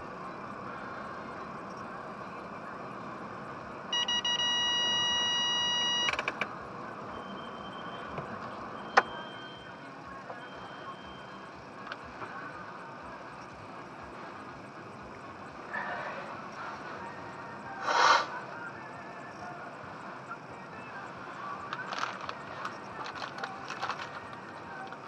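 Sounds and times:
continuous electronic beep: 0.0 - 25.0
steady machine hum: 0.0 - 25.0
sharp clicks: 6.0 - 6.5.

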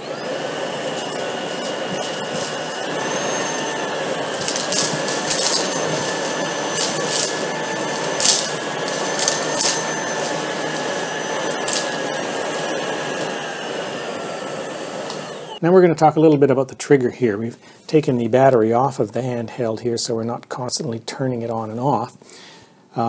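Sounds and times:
dirt rattling up vacuum tool: 0.0 - 15.6
handheld vacuum motor whine: 0.0 - 15.6.

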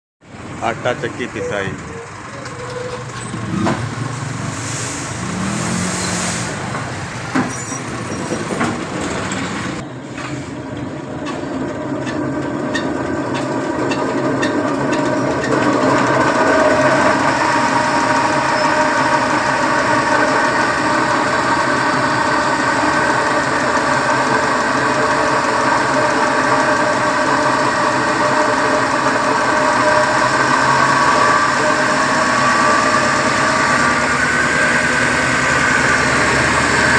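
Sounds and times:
flour mill droning hum: 11.6 - 36.9.

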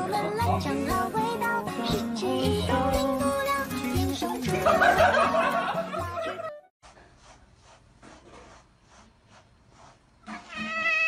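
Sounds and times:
music with voices: 0.0 - 6.5
brush strokes through fur: 6.8 - 11.0
cat meowing: 10.3 - 11.0.

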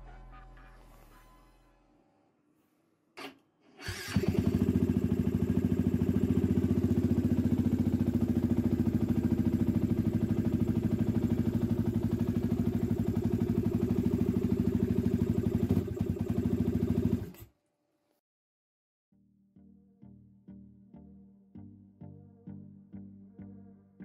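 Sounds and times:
motorcycle engine idling: 4.1 - 17.3.

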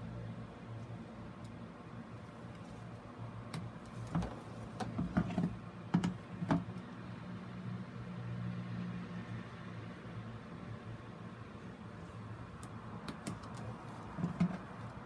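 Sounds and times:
hard plastic clicking and knocking: 3.6 - 6.7, 13.1 - 14.7.

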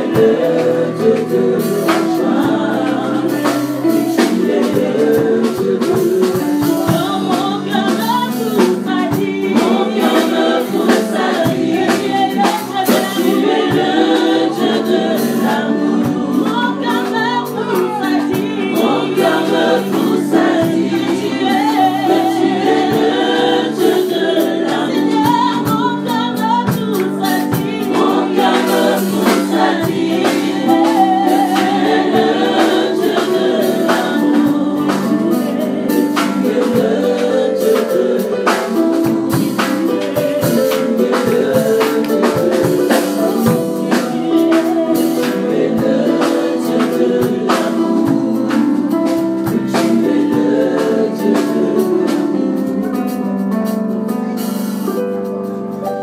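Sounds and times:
group singing gospel song: 0.0 - 55.0
band accompanying: 0.0 - 56.0.

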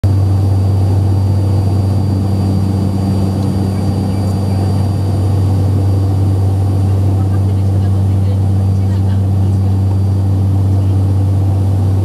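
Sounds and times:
airliner cabin engine hum: 0.0 - 12.0
faint high whine: 0.1 - 6.5.

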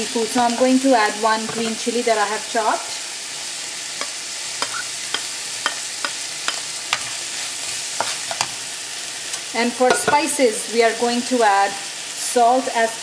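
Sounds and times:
onions sizzling in hot oil: 0.0 - 13.0
spatula clicking on wok: 4.0 - 7.1.

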